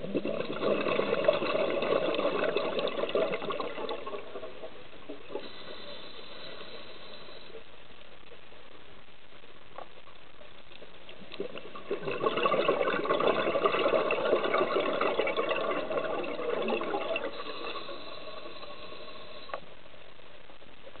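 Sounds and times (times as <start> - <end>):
diver's exhaled bubbles: 0.0 - 7.4, 11.2 - 19.5
steady underwater hiss: 0.0 - 20.1
faint click: 19.4 - 19.7.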